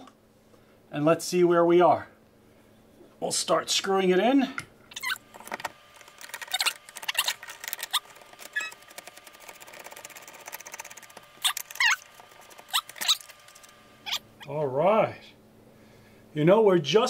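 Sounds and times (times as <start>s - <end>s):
parts squeaking: 4.9s - 14.5s.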